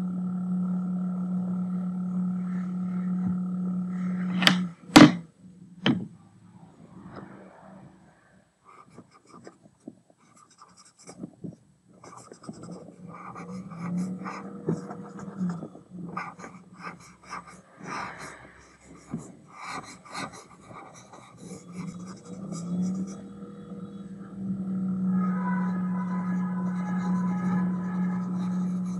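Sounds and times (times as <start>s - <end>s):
eraser rubbing on paper: 10.2s - 11.2s, 12.0s - 15.6s, 16.2s - 23.2s, 26.3s - 28.9s.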